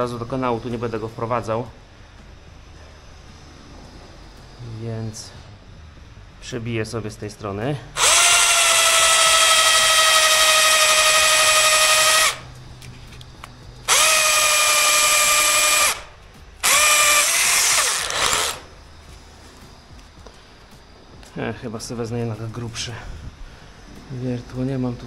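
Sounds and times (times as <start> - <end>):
electric drill whining: 8.0 - 12.5, 13.8 - 18.7.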